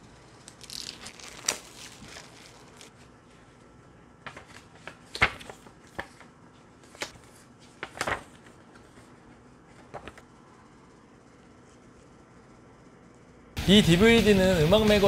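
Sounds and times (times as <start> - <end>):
paper rustling: 0.4 - 10.3.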